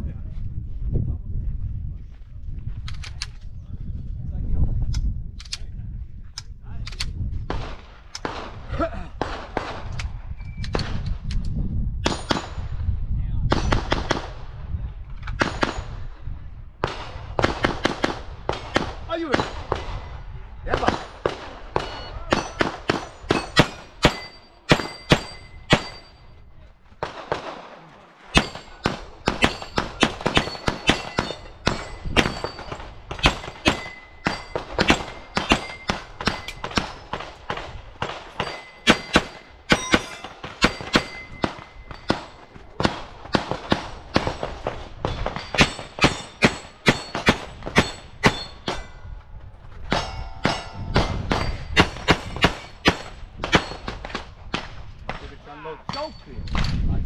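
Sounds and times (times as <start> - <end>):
rapid pistol shots: 13.5 - 14.4, 16.8 - 20.0, 20.7 - 26.1, 27.0 - 48.8, 50.0 - 55.2
steel targets clanging: 21.8 - 26.4, 28.3 - 37.2, 38.3 - 42.5, 45.1 - 49.1, 49.9 - 54.0.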